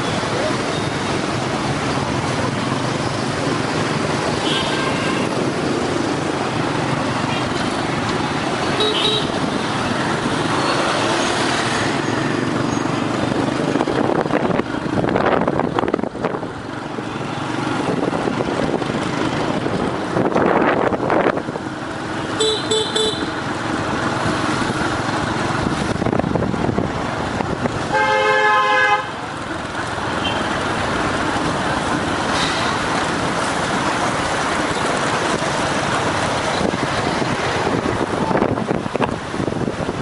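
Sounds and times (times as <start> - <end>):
motorbike and car traffic: 0.0 - 40.0
horn beeps: 22.4 - 23.3
long horn blast: 27.9 - 29.2.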